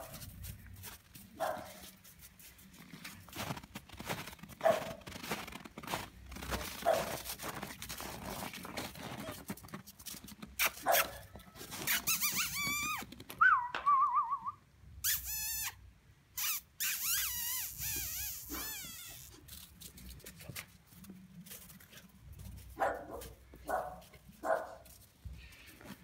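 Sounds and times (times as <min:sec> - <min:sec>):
paws crunching snow: 0:00.0 - 0:13.2, 0:18.0 - 0:26.0
puppy whining high-pitched: 0:10.6 - 0:13.7, 0:15.0 - 0:15.8, 0:16.4 - 0:19.4.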